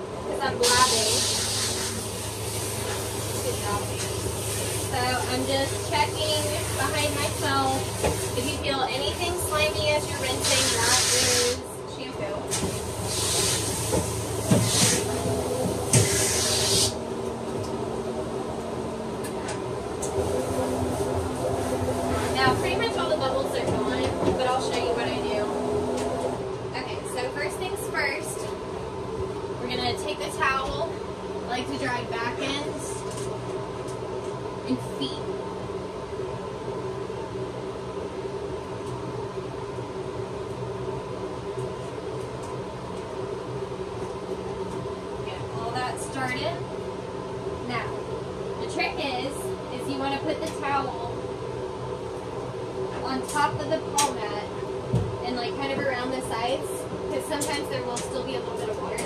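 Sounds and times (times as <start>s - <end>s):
steady machine hum: 0.0s - 59.0s
water hissing from hose: 0.6s - 5.8s, 10.3s - 11.6s, 12.6s - 15.2s, 15.8s - 17.0s.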